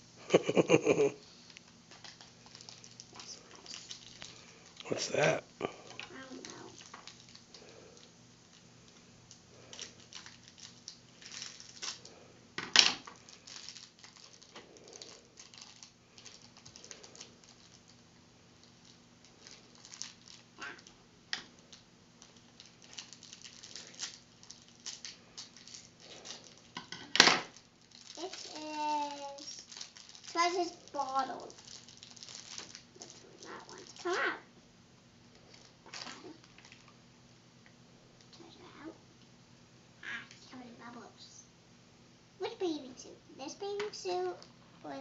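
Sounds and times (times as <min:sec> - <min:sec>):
wrapping rustling: 0:00.6 - 0:12.3, 0:13.0 - 0:26.8, 0:27.4 - 0:34.2, 0:35.3 - 0:37.0.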